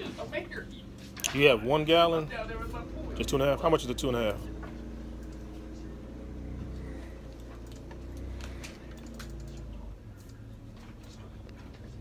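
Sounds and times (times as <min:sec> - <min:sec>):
steady low hum: 0:00.0 - 0:12.0
keyboard keys clicking: 0:07.4 - 0:10.4.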